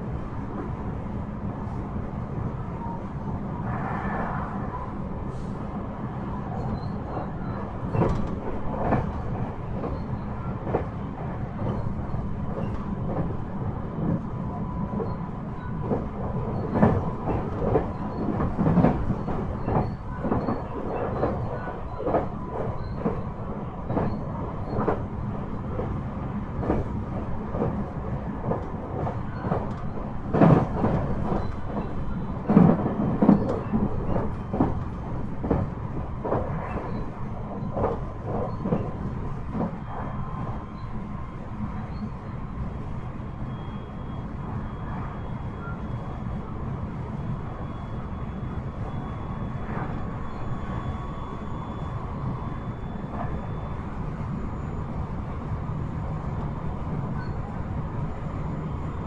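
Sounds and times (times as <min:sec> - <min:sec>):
train wheels rumbling on rail: 0:00.0 - 0:59.0
clacks over rail joints: 0:06.8 - 0:13.4, 0:15.8 - 0:25.1, 0:26.6 - 0:40.2.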